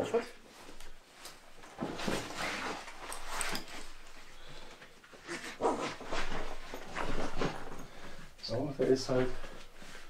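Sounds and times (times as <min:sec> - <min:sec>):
backpack straps rustling: 0:00.6 - 0:08.3.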